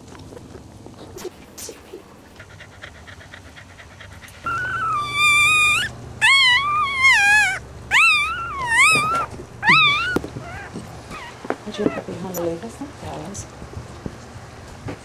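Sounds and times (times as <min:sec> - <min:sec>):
puppy squealing: 0:04.4 - 0:12.2.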